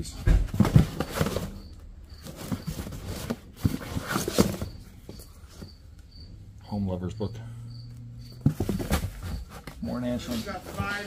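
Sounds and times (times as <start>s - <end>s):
books knocking and sliding: 0.0s - 5.8s, 8.3s - 11.0s.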